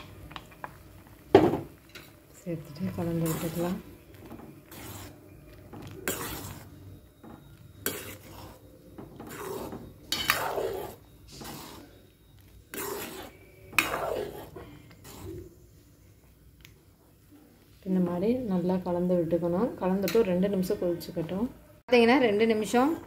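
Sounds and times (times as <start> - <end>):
steel ladle scraping a pot: 1.8 - 15.6.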